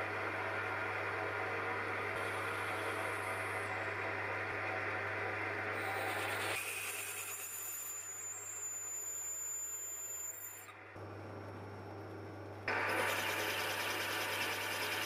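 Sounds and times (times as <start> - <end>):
metal lathe running: 1.1 - 10.7, 12.7 - 15.0
high-pitched drilling whine: 2.2 - 4.1, 5.7 - 10.8, 12.7 - 15.0
drill cutting noise: 5.7 - 10.8, 12.7 - 15.0.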